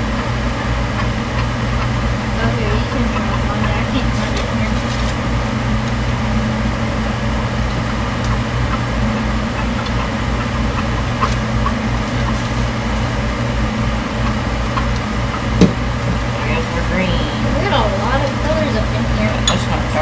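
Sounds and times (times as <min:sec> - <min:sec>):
fan or motor humming: 0:00.0 - 0:20.0
sharp knock: 0:15.6 - 0:15.8.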